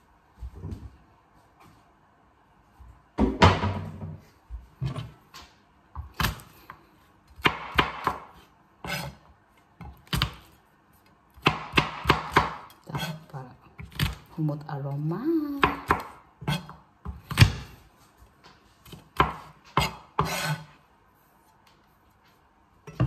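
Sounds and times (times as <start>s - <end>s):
knife chopping on cutting board: 7.3s - 9.2s, 9.8s - 10.5s, 11.4s - 13.2s, 15.6s - 17.8s, 18.8s - 20.7s.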